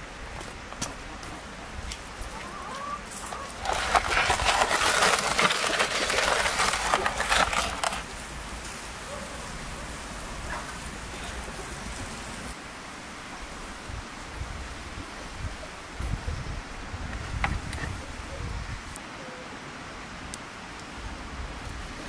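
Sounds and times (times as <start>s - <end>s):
wood fire crackling: 3.1s - 12.6s
metal tray pushed over coals: 3.2s - 8.1s.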